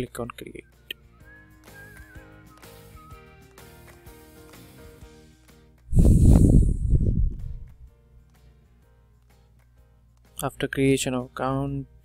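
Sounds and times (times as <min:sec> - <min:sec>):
soft background music: 0:00.0 - 0:12.0.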